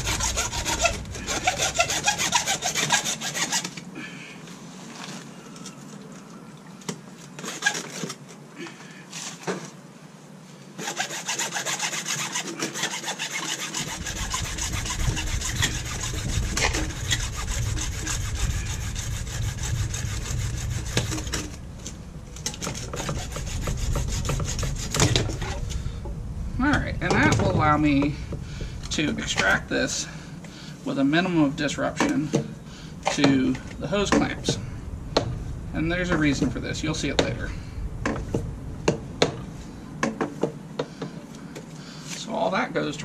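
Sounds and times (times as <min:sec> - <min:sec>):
hand saw cutting pipe: 0:00.0 - 0:03.8, 0:07.4 - 0:08.1, 0:10.8 - 0:21.6, 0:22.4 - 0:25.6.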